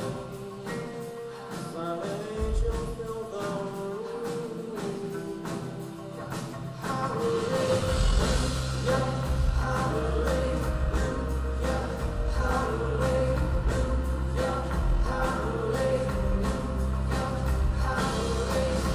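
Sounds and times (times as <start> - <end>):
song with sung melody and beat: 0.0 - 18.9.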